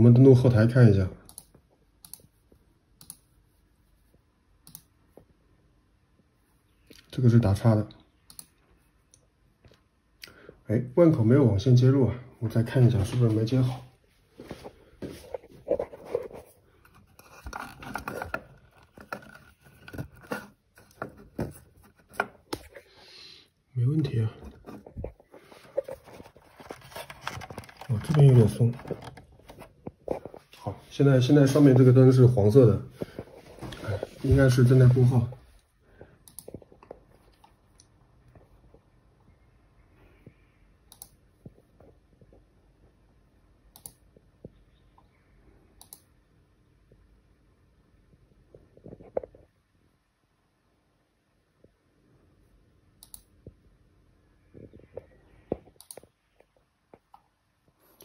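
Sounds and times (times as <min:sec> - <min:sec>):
cable connectors clicking and tapping: 0:16.9 - 0:22.8, 0:24.4 - 0:30.0.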